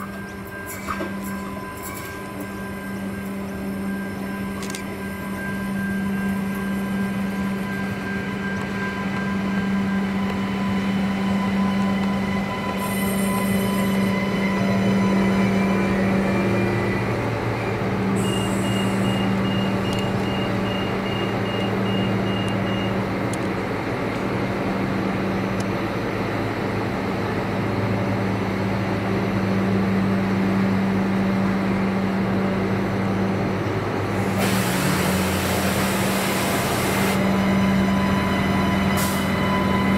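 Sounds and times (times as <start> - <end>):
diesel railcar engine drone: 0.0 - 39.9
short beeps: 18.2 - 23.0.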